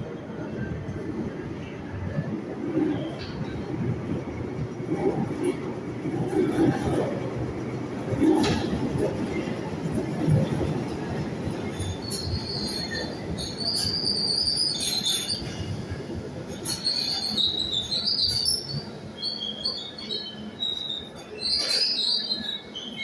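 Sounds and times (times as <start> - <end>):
train wheels rumbling on rails: 0.0 - 23.0
high-pitched wheel squeals: 11.7 - 15.7, 16.6 - 23.0.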